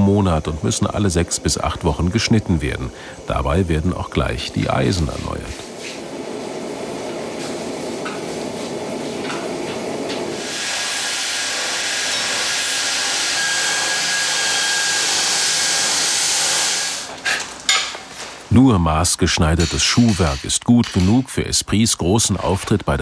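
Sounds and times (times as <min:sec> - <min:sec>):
spray hissing: 0:10.3 - 0:17.1
power grinder grinding steel: 0:10.3 - 0:17.2.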